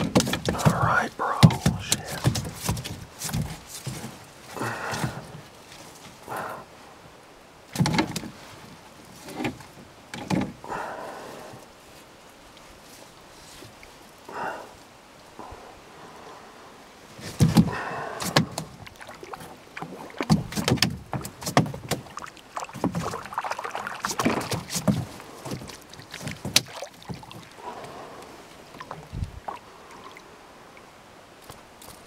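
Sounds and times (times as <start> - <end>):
gear knocking against canoe hull: 0.0 - 4.2, 17.2 - 27.9.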